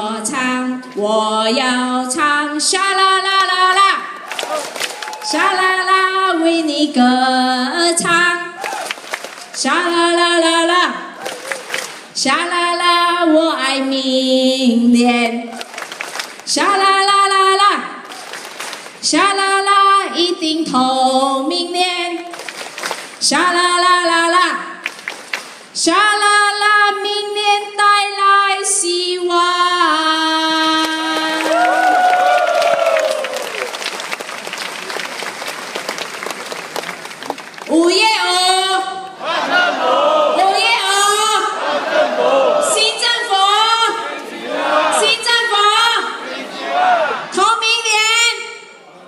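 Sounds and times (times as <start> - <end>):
woman singing into a microphone: 0.0 - 4.0, 5.3 - 8.6, 12.2 - 15.5, 19.0 - 22.3, 23.2 - 24.8, 25.8 - 31.5.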